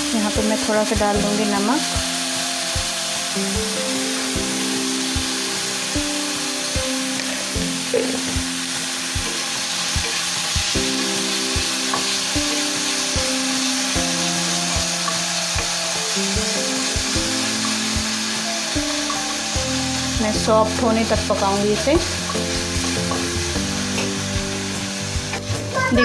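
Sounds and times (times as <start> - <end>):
background music with steady beat: 0.0 - 26.0
vegetables sizzling in a pan: 0.0 - 26.0.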